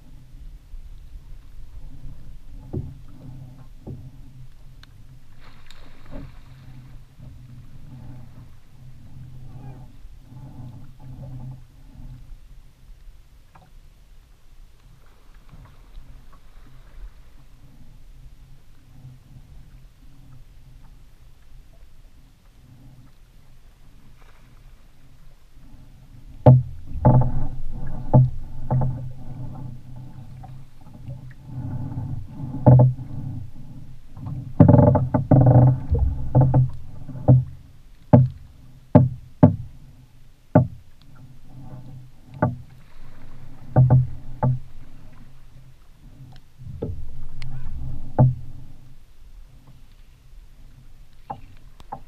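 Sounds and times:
water slapping against boat hull: 2.0s - 8.7s, 26.3s - 39.8s, 40.5s - 41.0s, 41.6s - 49.0s
steady low rumble: 35.2s - 38.0s, 46.7s - 49.4s.

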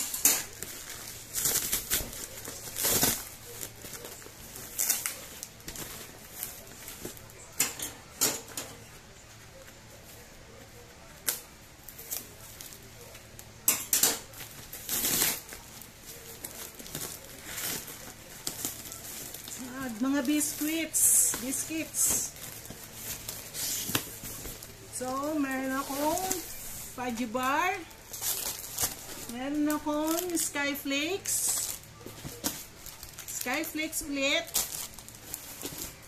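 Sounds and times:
packing tape ripping off cardboard: 0.0s - 7.3s, 14.3s - 19.6s, 28.1s - 30.4s.

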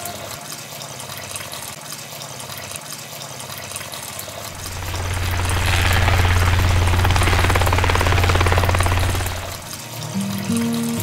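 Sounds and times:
electric motor humming: 4.5s - 9.7s.

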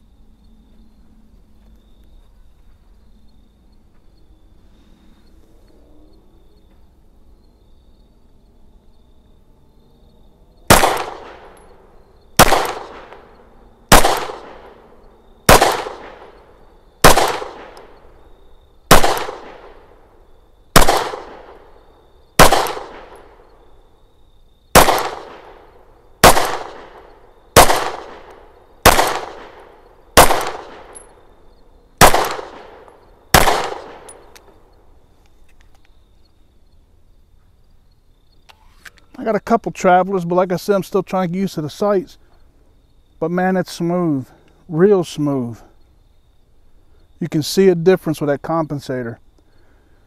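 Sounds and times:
pistol shots with echo: 10.7s - 11.8s, 12.4s - 18.1s, 18.9s - 20.0s, 20.7s - 21.7s, 22.4s - 23.6s, 24.7s - 31.2s, 32.0s - 34.5s.

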